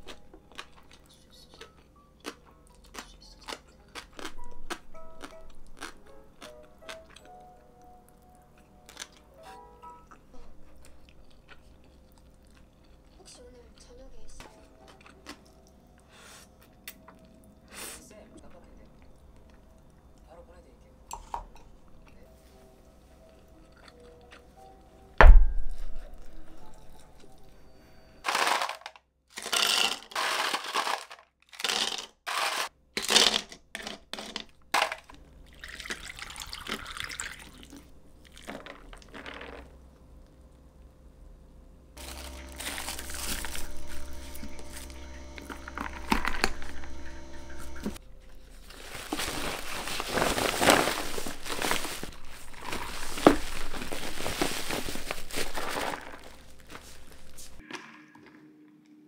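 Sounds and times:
paper bag crinkling: 28.2 - 33.4, 42.0 - 46.9, 47.9 - 57.6
liquid pouring: 35.5 - 38.6
steady hum: 40.1 - 57.6.

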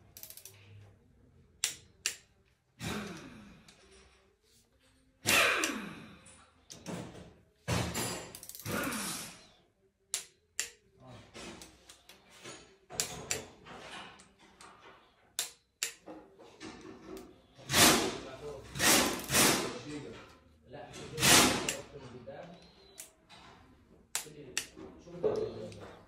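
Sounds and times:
metal tools clinking: 7.8 - 9.0.

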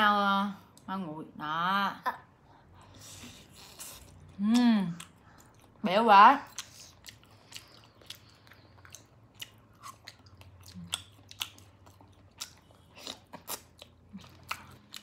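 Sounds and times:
low steady hum: 0.0 - 15.0
chewing with wet smacks: 3.4 - 15.0.

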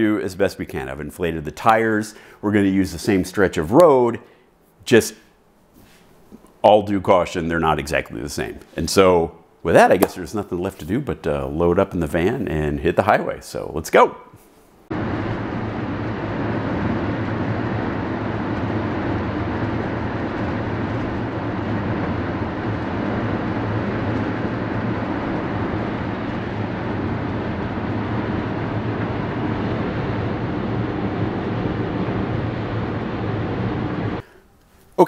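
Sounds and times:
engine hum: 14.9 - 34.2
wind noise: 14.9 - 34.2.

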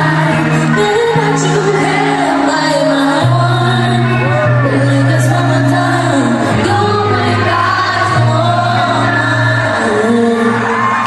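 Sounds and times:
vocal harmonies singing: 0.0 - 11.0.

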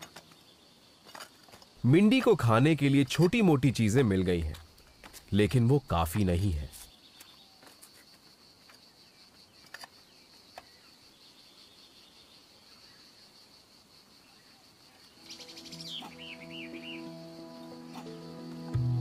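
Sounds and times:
high insect drone: 0.0 - 19.0
soft background music: 15.2 - 19.0.

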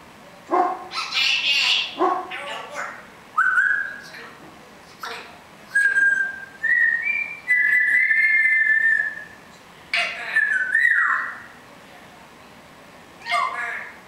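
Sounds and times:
parrot sharp call: 0.9 - 2.0
parrot whistling: 3.4 - 4.1, 5.7 - 9.4, 10.0 - 11.5.

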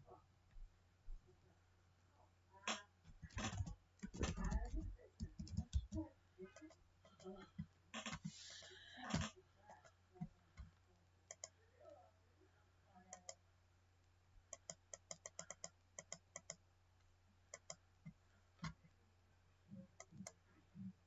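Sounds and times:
low steady hum: 0.0 - 21.0
computer mouse and keyboard clicking: 3.2 - 6.0, 14.5 - 16.6, 17.6 - 17.8.

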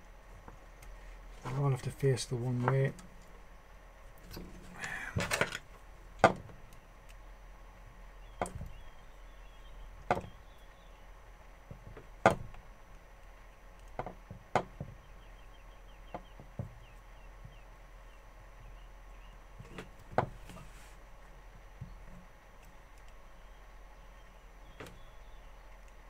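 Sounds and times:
short rustle: 20.3 - 21.1.

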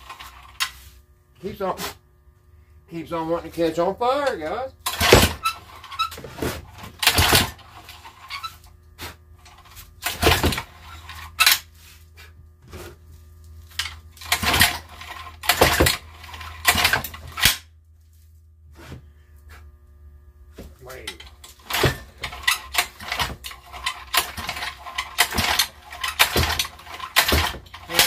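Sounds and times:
recoil starter cord pulls: 4.3 - 6.2, 13.7 - 17.6, 21.0 - 28.0.

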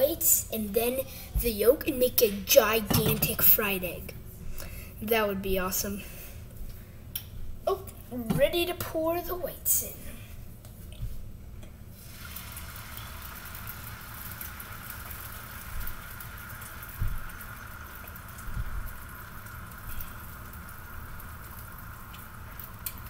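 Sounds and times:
egg sizzling in a frying pan: 11.9 - 23.0.

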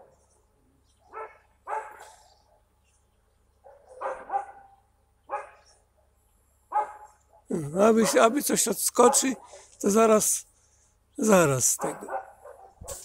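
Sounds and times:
dog barking: 1.1 - 2.7, 3.6 - 8.4, 9.0 - 9.6, 11.8 - 13.0.

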